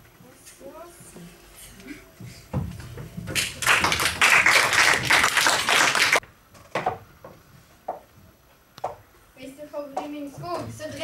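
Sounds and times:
audience applause: 3.4s - 6.2s.

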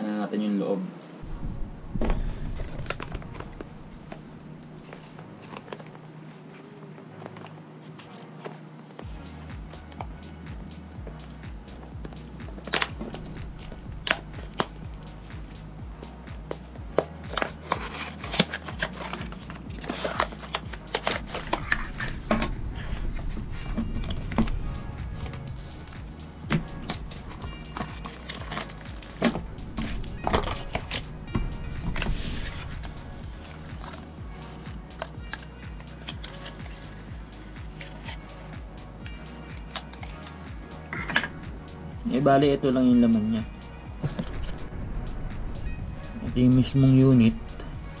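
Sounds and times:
cardboard packaging rustling: 2.0s - 8.9s, 16.9s - 34.2s.

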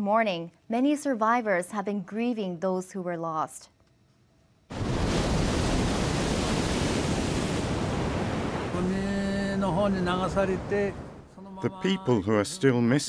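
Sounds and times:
ocean surf: 4.7s - 11.4s.

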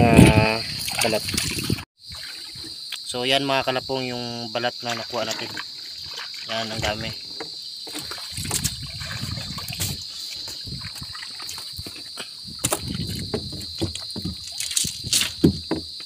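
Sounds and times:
high insect chirr: 0.0s - 16.0s
sharp knocks on deck: 15.3s - 15.9s.

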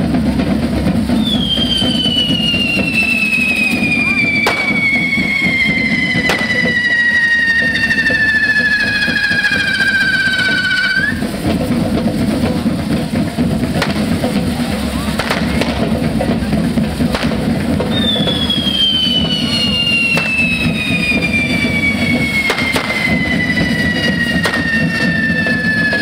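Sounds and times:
drumming: 0.0s - 26.0s
whistling fireworks: 1.1s - 11.3s, 14.9s - 16.0s, 17.1s - 26.0s
sharp cracks: 4.4s - 4.9s, 24.4s - 24.8s.

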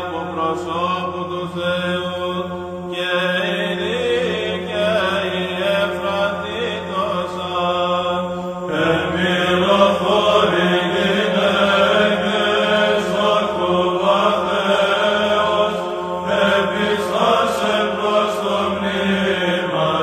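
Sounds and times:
held drone note: 0.0s - 20.0s
voices chanting: 8.7s - 20.0s.

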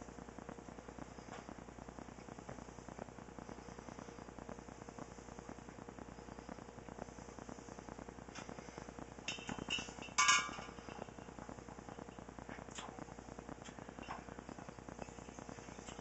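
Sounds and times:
faint crackle: 0.0s - 16.0s
glass jug clinking: 9.3s - 10.7s.

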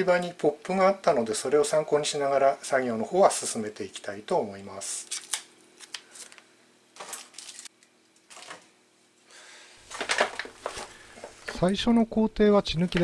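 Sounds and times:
plastic wrap rustling: 7.0s - 8.7s, 9.8s - 11.7s.

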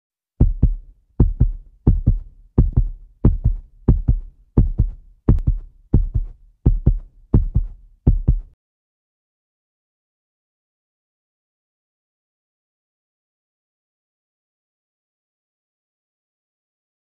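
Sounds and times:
heartbeat thumps: 0.4s - 8.6s.

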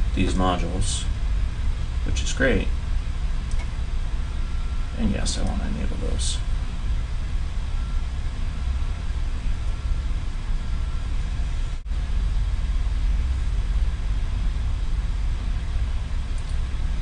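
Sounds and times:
low background rumble with hiss: 0.0s - 17.0s.

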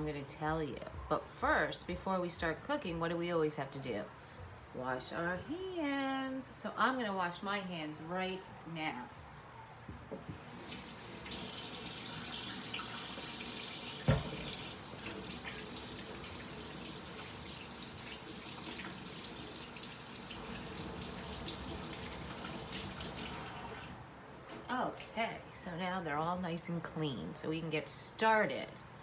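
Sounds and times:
sink tap running: 10.4s - 24.0s.

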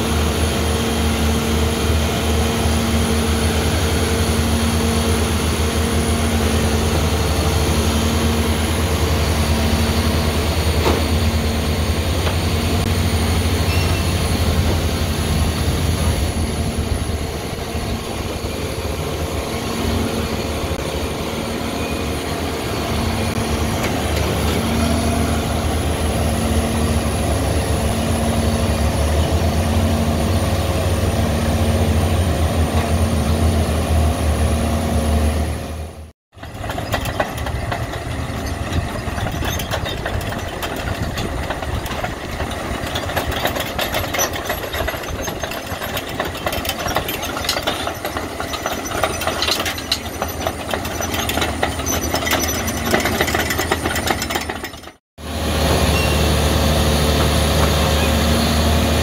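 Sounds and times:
harvester engine whining: 0.0s - 59.0s
machinery clattering: 36.4s - 59.0s.

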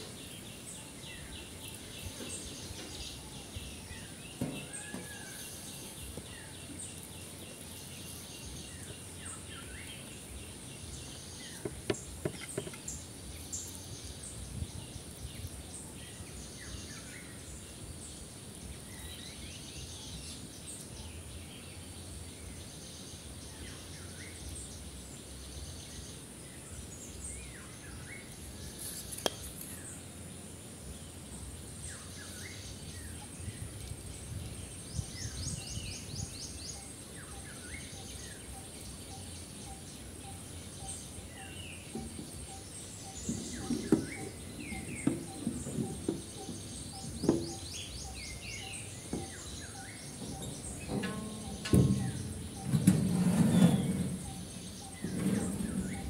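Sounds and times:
small birds chirping and trilling: 0.0s - 56.0s
loud knocks: 43.2s - 47.7s, 49.1s - 56.0s.

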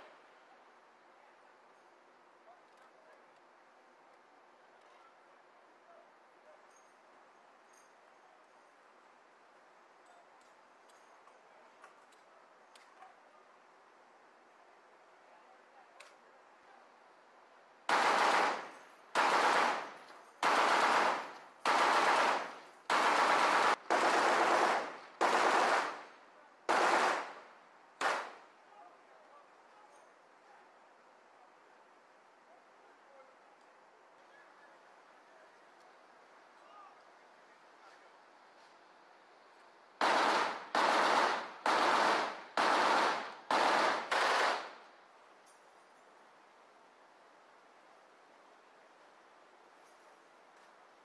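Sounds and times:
faint steady hiss: 0.0s - 51.0s
machine gun firing bursts: 17.9s - 26.0s, 26.7s - 27.4s, 28.0s - 28.3s, 40.0s - 44.8s.

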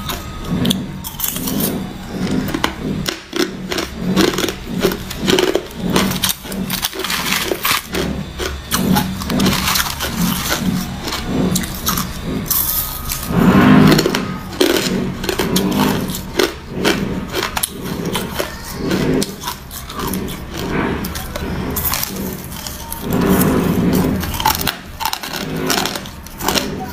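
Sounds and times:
ice crunching between teeth: 1.0s - 13.3s
spoon scraping ice in plastic container: 3.4s - 26.9s.

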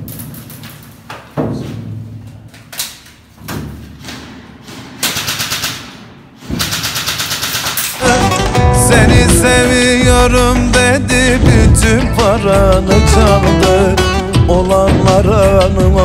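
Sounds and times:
airsoft rifle firing bursts: 6.6s - 8.0s.

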